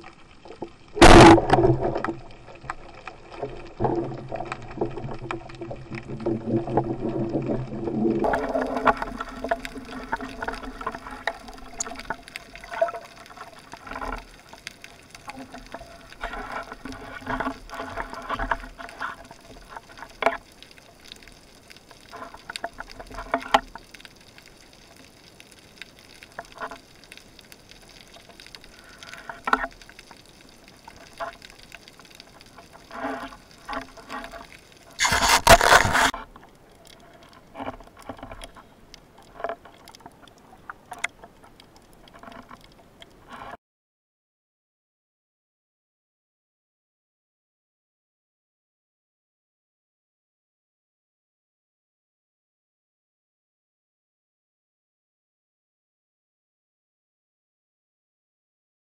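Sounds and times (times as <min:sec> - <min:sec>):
underwater clicks and knocks: 0:00.0 - 0:20.5, 0:27.9 - 0:30.2, 0:30.9 - 0:43.6
dense underwater noise: 0:00.0 - 0:43.6
faint watery hiss: 0:08.3 - 0:37.6.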